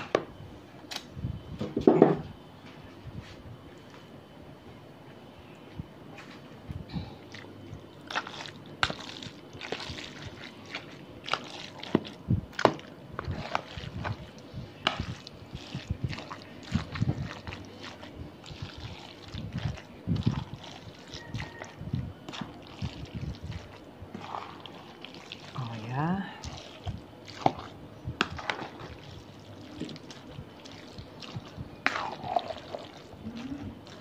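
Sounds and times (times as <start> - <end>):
wet squelches of stirred salad: 7.0 - 34.0.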